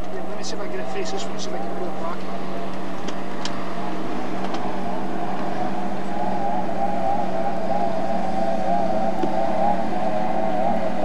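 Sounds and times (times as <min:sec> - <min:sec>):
speedboat engine drone: 0:00.0 - 0:11.0
steady low hum: 0:00.0 - 0:11.0.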